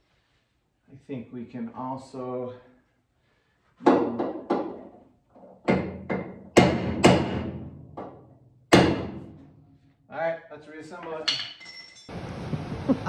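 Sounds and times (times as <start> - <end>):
hammer striking metal: 5.7 - 9.4.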